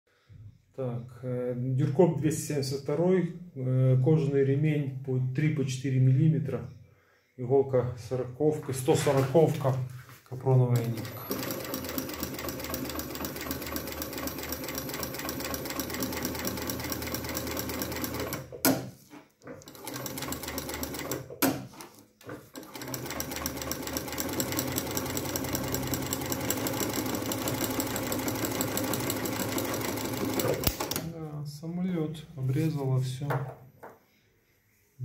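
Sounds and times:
sewing machine stitching leather: 10.8 - 31.1
sharp click of sewing machine: 30.4 - 31.1.

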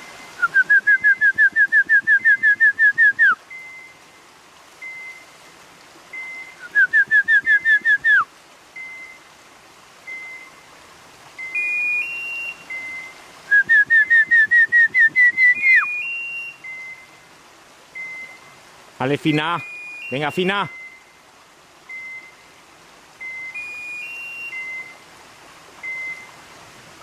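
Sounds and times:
short single beep: 4.8 - 5.2, 11.4 - 13.1, 18.0 - 18.4, 19.6 - 21.1, 21.9 - 22.4, 23.2 - 25.0, 25.8 - 26.3
higher two-step beep: 19.2 - 21.0, 21.9 - 22.3, 23.2 - 25.0, 25.8 - 26.3.

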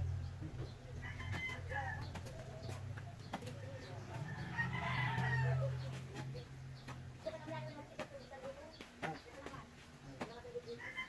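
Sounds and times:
rooster crowing: 1.0 - 2.1, 4.2 - 5.9.

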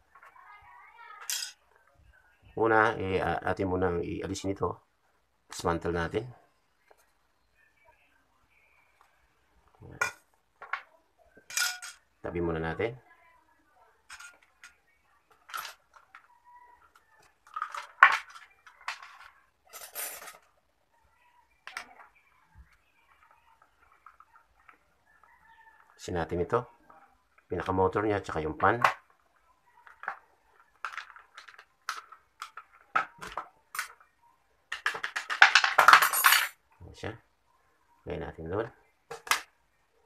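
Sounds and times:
plastic knocks and clatter: 34.7 - 36.0.

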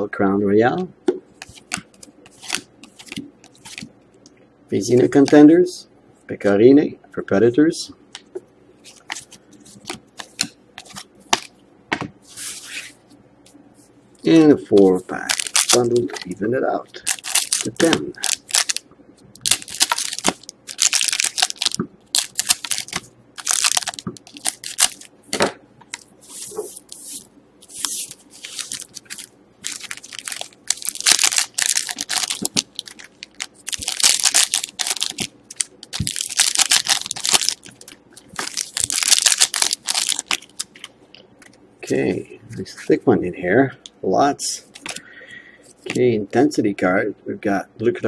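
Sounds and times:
foil wrappers crinkling and tearing: 15.2 - 16.4, 17.0 - 18.8, 19.4 - 25.1, 25.9 - 40.9.

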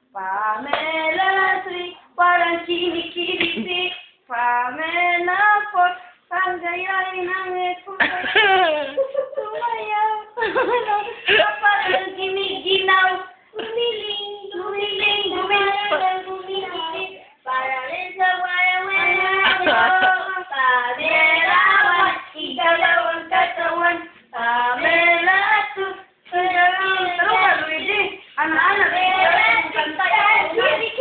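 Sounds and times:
person singing: 3.2 - 23.8.

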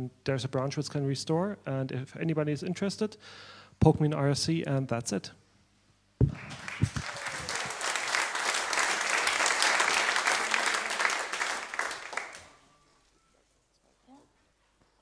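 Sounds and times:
audience applauding: 6.2 - 12.7.

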